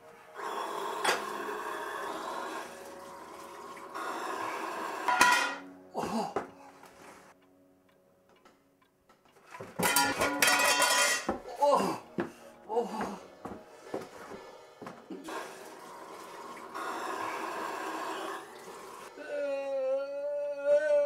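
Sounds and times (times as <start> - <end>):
tap water running into sink: 2.7 - 4.0, 15.1 - 19.1
pots and dishes clattering: 5.1 - 5.7, 9.3 - 11.5.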